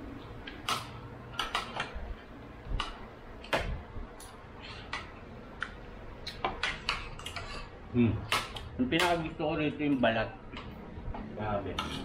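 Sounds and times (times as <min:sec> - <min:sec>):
cutlery clinking on plates: 0:11.7 - 0:12.0.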